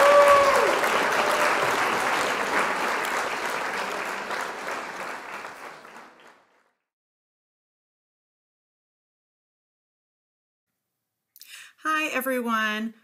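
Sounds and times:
crowd applause: 0:00.0 - 0:06.8.

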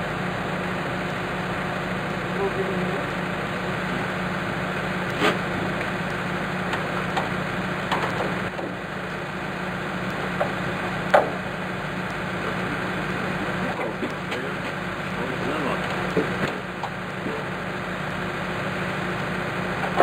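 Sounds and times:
engine running: 0:00.0 - 0:20.0
sharp knocks: 0:10.4 - 0:11.4.

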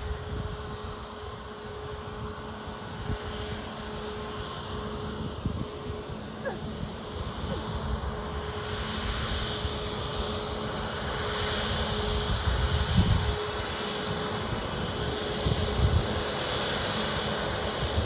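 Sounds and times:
wind buffeting microphone: 0:12.0 - 0:13.4.

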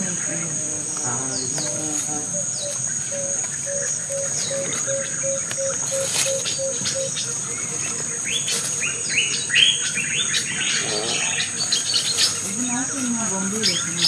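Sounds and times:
high insect whine: 0:00.0 - 0:14.0
bird chirps: 0:01.2 - 0:14.0.

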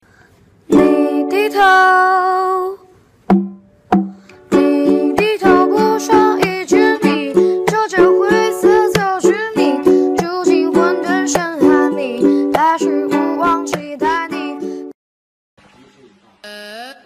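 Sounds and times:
strummed ukulele: 0:00.7 - 0:01.8, 0:03.3 - 0:14.9
person singing: 0:00.7 - 0:02.8, 0:04.4 - 0:15.0.

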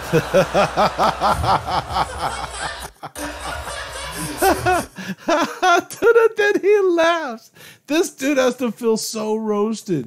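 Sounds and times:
man laughing hard: 0:00.0 - 0:03.6, 0:04.2 - 0:06.4.

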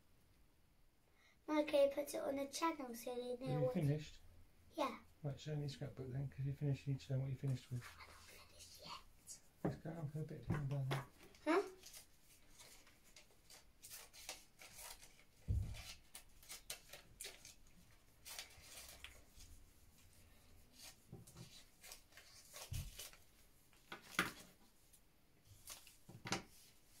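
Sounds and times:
paper rustling: 0:11.2 - 0:20.1, 0:20.7 - 0:24.7, 0:25.4 - 0:27.0.

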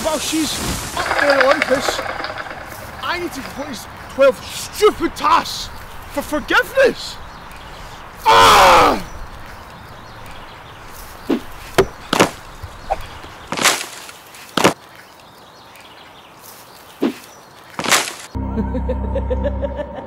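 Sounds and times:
man yelling: 0:08.2 - 0:09.1
sharp knocks and thuds: 0:11.3 - 0:13.9.

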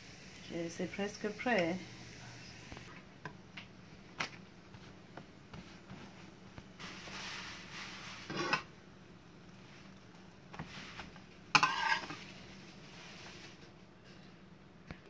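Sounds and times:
metal spatula scraping frying pan: 0:06.8 - 0:08.7, 0:10.6 - 0:13.2.

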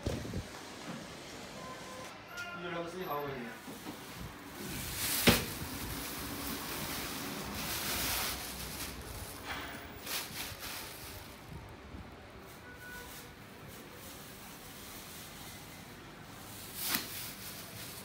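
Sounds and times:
plastic bag rustling: 0:04.0 - 0:15.4, 0:16.5 - 0:18.0.

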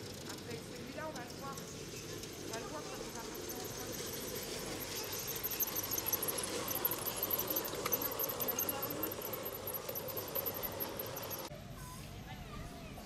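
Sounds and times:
model train wheels clicking on rails: 0:00.0 - 0:11.5
faint high chirps: 0:03.4 - 0:11.5.

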